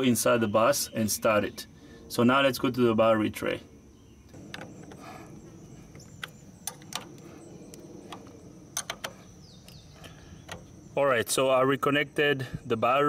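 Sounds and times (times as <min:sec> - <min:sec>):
wrench clicking on metal nut: 0:08.8 - 0:09.2.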